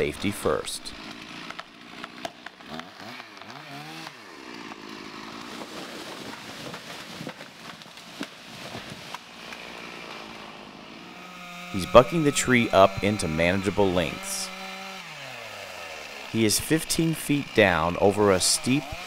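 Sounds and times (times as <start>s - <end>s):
wood cracking: 0.0s - 11.8s
chainsaw running: 0.0s - 19.0s.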